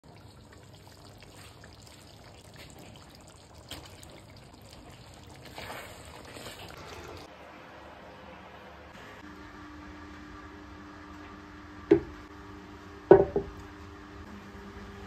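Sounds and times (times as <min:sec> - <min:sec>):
curry simmering and bubbling: 0:00.0 - 0:07.3.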